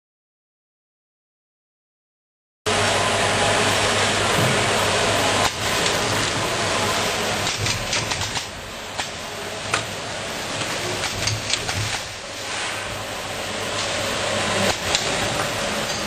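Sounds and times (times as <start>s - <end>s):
packaging machine running: 2.7s - 16.0s
sharp mechanical clicks and knocks: 7.4s - 12.2s, 14.6s - 16.0s.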